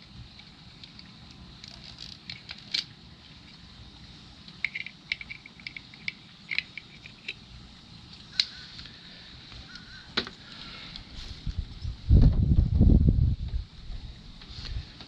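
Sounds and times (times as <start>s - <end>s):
metallic clicks and clinks: 4.5s - 7.4s.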